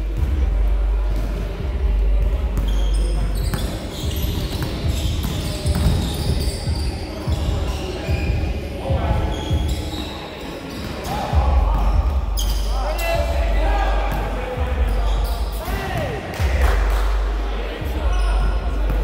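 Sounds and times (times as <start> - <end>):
players' voices: 0.0 - 19.0
basketball bouncing on hardwood: 4.4 - 6.1.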